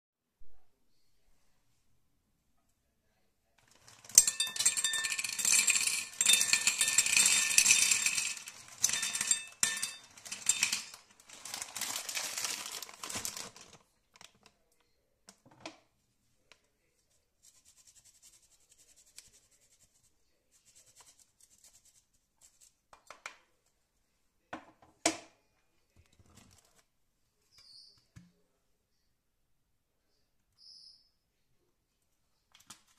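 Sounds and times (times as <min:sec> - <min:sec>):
dry pasta clattering into bowl: 0:03.6 - 0:14.4
bag crinkling: 0:05.4 - 0:14.3.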